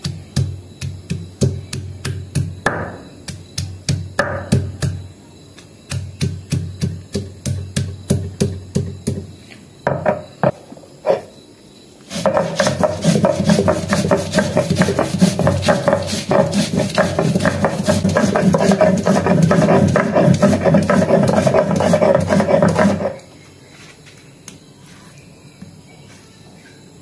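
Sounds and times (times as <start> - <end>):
stone pestle pounding: 0.0 - 5.0, 5.9 - 9.3, 12.1 - 23.2
grinding stone rasping: 12.1 - 23.2.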